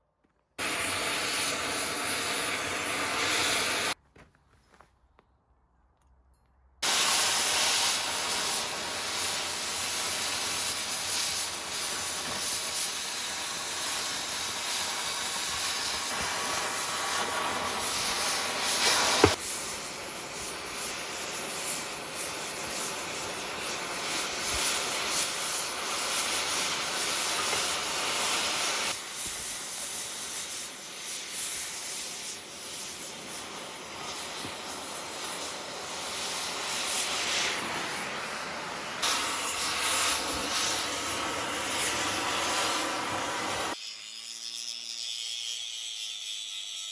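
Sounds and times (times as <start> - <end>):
cutting torch hissing: 0.6 - 4.0, 6.8 - 44.2.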